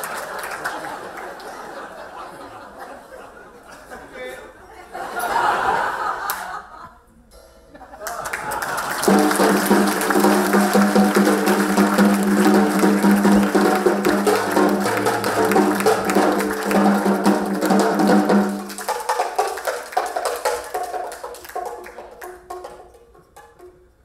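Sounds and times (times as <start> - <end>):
music with fast percussion: 8.1 - 24.0.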